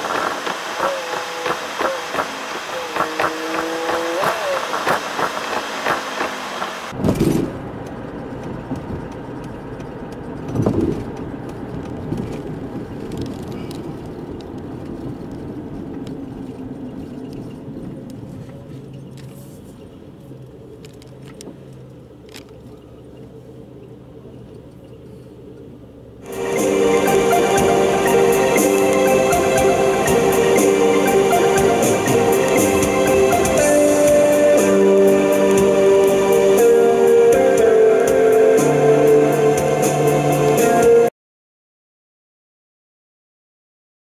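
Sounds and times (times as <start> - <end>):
car engine and road noise: 0.0 - 41.1
music: 26.2 - 41.1.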